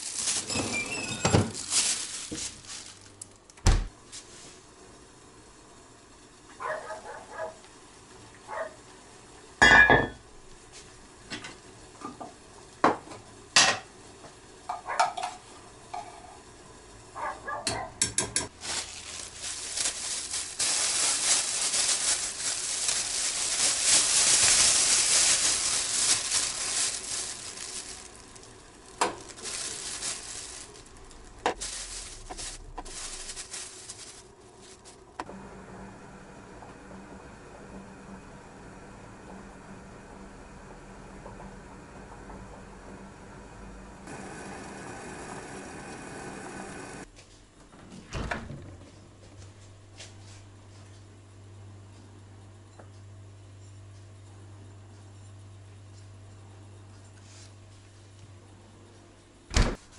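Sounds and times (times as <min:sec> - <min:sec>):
plastic bag crinkling: 0:00.0 - 0:03.5, 0:18.5 - 0:35.2.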